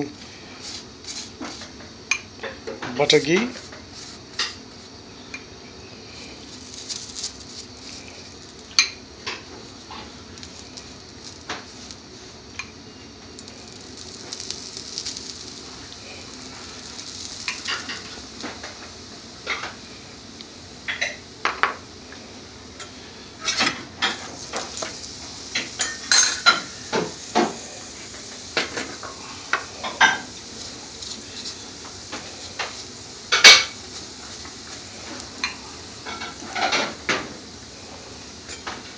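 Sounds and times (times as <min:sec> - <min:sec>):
flatbread sizzling in a pan: 0:00.0 - 0:38.9
utensil clinking and scraping pan: 0:13.4 - 0:18.8, 0:23.4 - 0:37.0.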